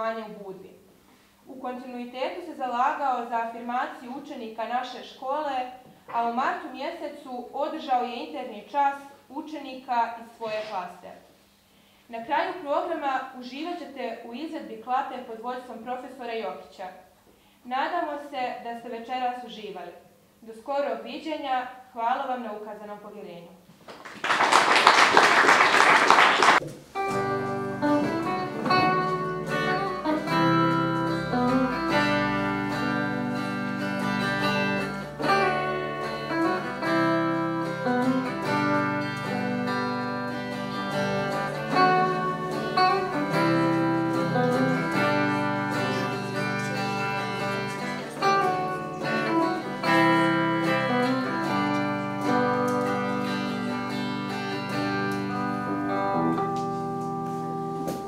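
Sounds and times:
applause: 0:23.8 - 0:26.6
guitar ensemble playing melody: 0:24.5 - 0:58.0.

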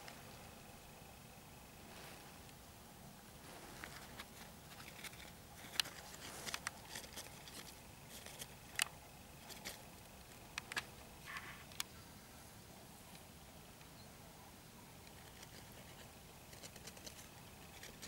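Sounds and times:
light clicks and rustles: 0:03.4 - 0:11.9.

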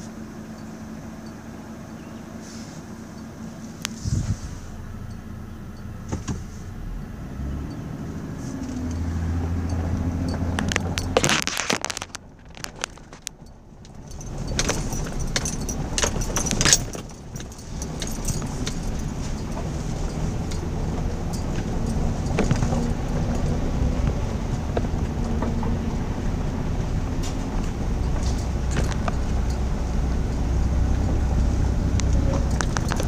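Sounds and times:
truck engine hum: 0:00.0 - 0:33.0
jingling rattling clicks: 0:08.6 - 0:25.7, 0:27.1 - 0:33.0.

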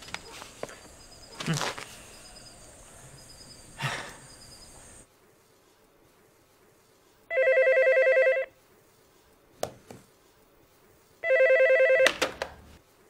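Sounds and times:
electronic telephone ringing: 0:07.3 - 0:08.5, 0:11.2 - 0:12.1.

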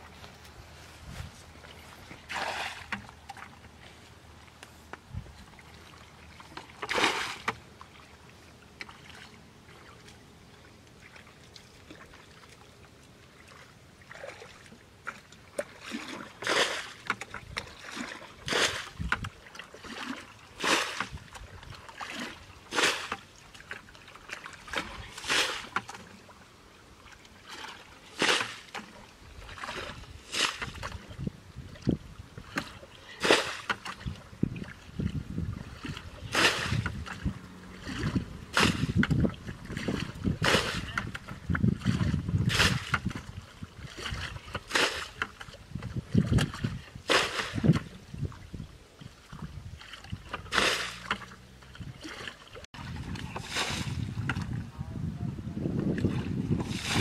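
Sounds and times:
water splashing from bucket: 0:02.2 - 0:03.6, 0:05.9 - 0:08.0, 0:14.1 - 0:26.1, 0:27.4 - 0:31.2, 0:31.8 - 0:48.1, 0:49.2 - 0:54.6, 0:55.8 - 0:57.0.

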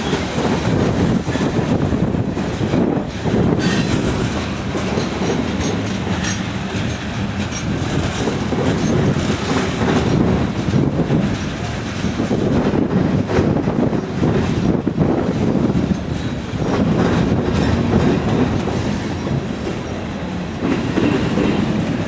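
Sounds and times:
freight train wheels rumbling: 0:00.0 - 0:22.0.

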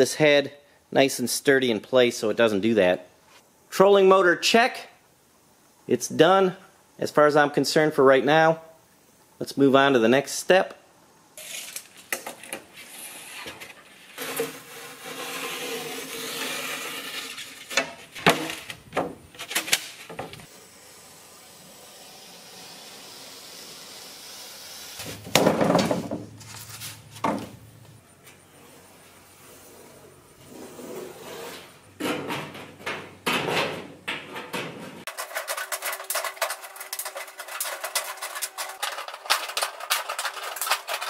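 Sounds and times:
knife scraping foam board: 0:12.8 - 0:17.8
loud clatter: 0:34.4 - 0:41.0.

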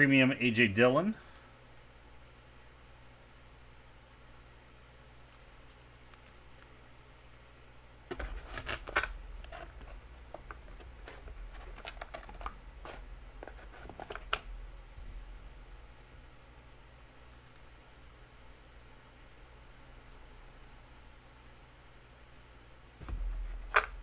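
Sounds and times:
cards and packaging rustling: 0:08.0 - 0:15.2.

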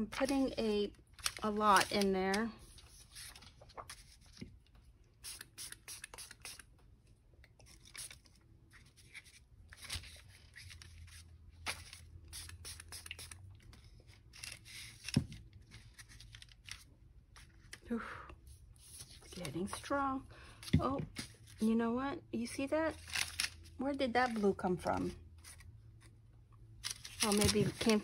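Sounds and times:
paper sheets rustling: 0:01.2 - 0:04.4, 0:26.8 - 0:28.0.

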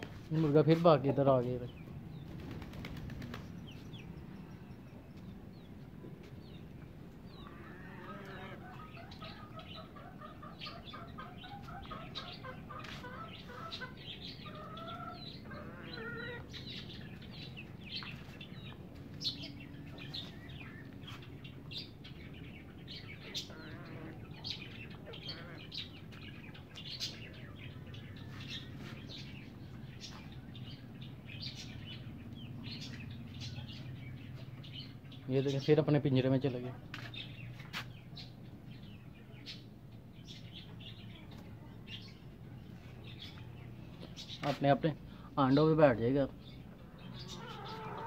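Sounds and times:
hens clucking: 0:07.4 - 0:17.0, 0:23.1 - 0:29.3, 0:46.6 - 0:48.0.

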